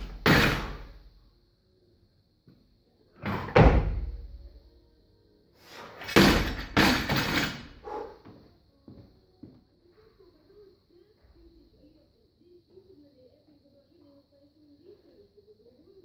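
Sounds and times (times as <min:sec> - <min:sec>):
barbell dropped on rubber platform: 0:00.0 - 0:00.9, 0:06.0 - 0:07.7.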